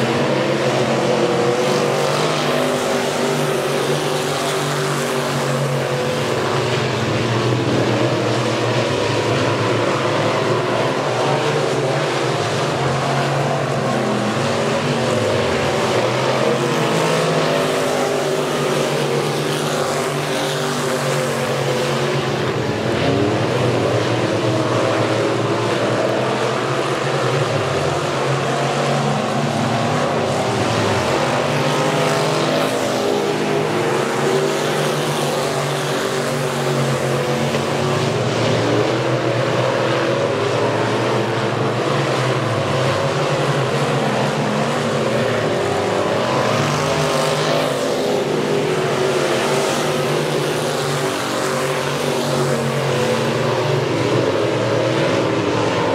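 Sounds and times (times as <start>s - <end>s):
race car engines: 0.0s - 55.9s.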